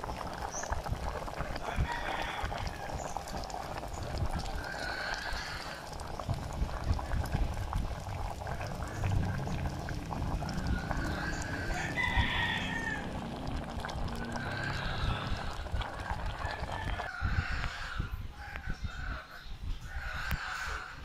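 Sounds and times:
soup boiling in a metal pot: 0:00.0 - 0:18.6.

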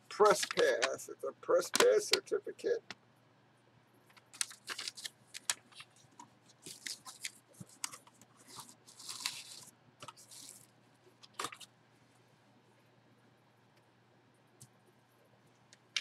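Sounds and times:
paper and packaging rustling: 0:00.1 - 0:01.0, 0:04.2 - 0:11.7.

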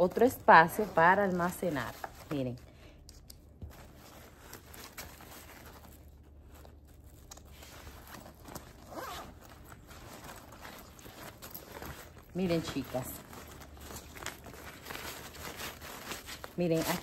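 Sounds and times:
fabric rustling: 0:00.0 - 0:02.7, 0:03.5 - 0:17.0
zipper being pulled: 0:07.2 - 0:14.1.

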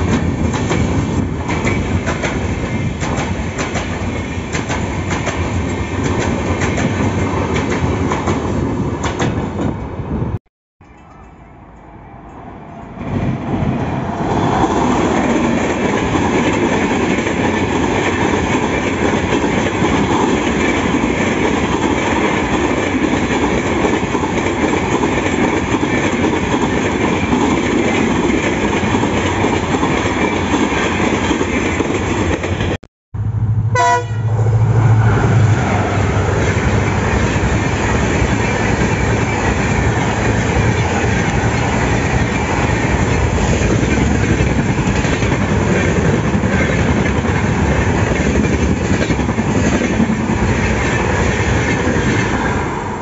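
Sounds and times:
passenger train rumbling past: 0:00.0 - 0:53.0.

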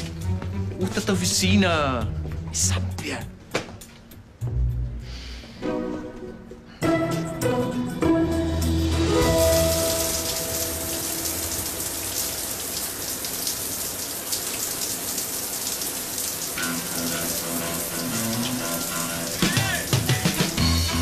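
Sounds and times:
shower water splashing on tiles: 0:09.0 - 0:20.6.

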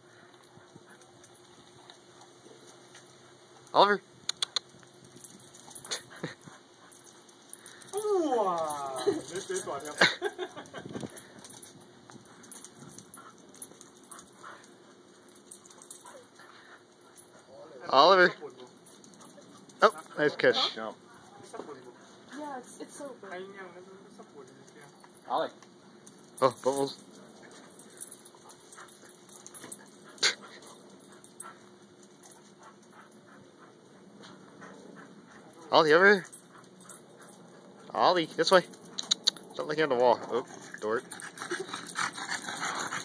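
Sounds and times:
dog claws ticking on concrete: 0:04.3 - 0:08.0, 0:38.5 - 0:39.6.

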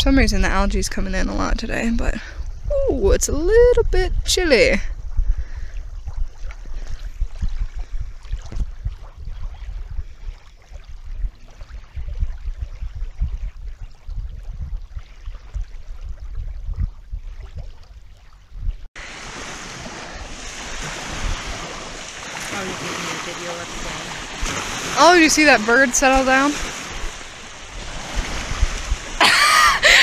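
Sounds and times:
wind buffeting microphone: 0:00.0 - 0:30.0
waves lapping on shore: 0:05.4 - 0:16.1, 0:19.0 - 0:30.0.

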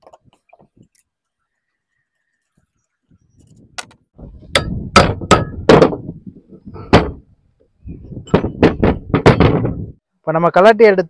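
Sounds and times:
hammer striking metal pump: 0:04.5 - 0:06.0.

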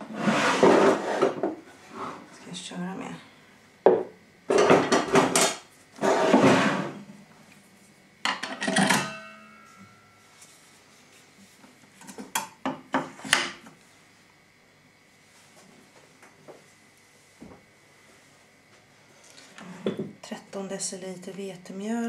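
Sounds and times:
rustling scrape: 0:00.0 - 0:02.3, 0:06.0 - 0:07.0.

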